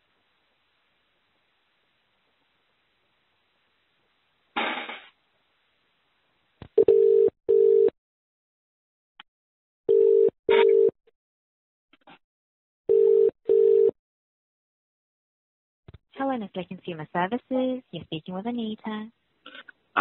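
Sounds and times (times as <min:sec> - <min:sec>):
phone line noise: 0:06.8 - 0:07.9, 0:09.9 - 0:10.9, 0:12.9 - 0:13.9
telephone ringback tone: 0:06.8 - 0:07.9, 0:09.9 - 0:10.9, 0:12.9 - 0:13.9.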